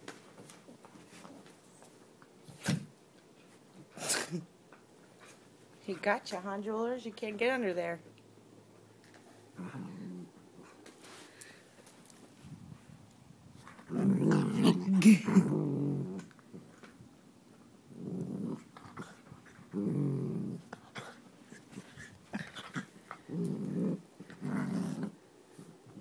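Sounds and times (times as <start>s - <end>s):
dogs growling: 9.5s - 10.8s, 13.7s - 16.9s, 17.9s - 26.0s.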